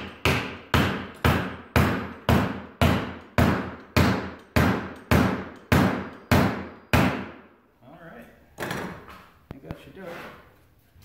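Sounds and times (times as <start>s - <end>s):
hammer blows ringing: 0.0s - 7.4s.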